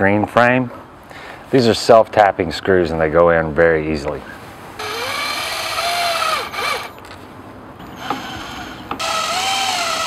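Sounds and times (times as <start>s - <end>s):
power drill motor whining: 4.8s - 7.0s, 7.9s - 10.0s.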